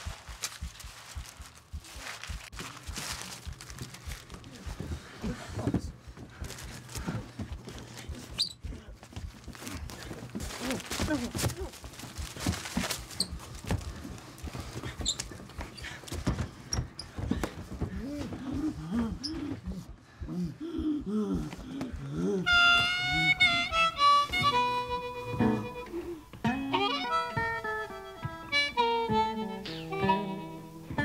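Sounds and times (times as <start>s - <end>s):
shuffling movement: 0.0s - 20.1s.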